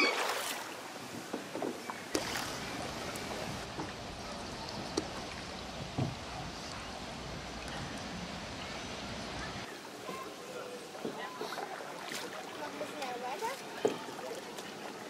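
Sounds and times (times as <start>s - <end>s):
canoe paddles splashing water: 0.0s - 6.8s, 9.4s - 15.0s
water wash: 0.0s - 15.0s.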